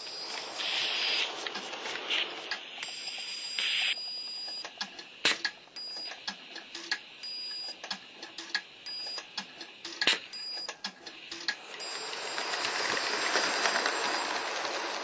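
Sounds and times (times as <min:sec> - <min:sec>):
steam hiss: 0:00.0 - 0:04.0
sharp clicks and ticks: 0:04.4 - 0:13.0.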